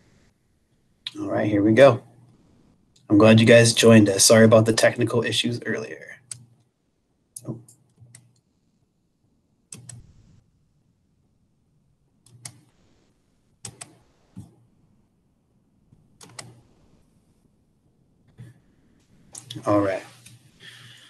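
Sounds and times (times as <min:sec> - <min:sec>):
mouse clicks: 0:06.2 - 0:06.7, 0:09.7 - 0:10.1, 0:12.2 - 0:12.7, 0:13.6 - 0:14.6, 0:16.2 - 0:16.6.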